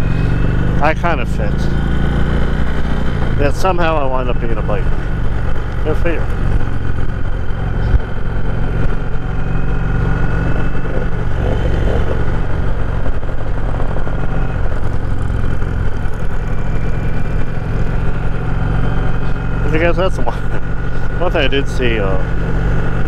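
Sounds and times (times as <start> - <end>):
motorcycle engine running: 0.0 - 23.0
wind noise on microphone: 9.8 - 15.1.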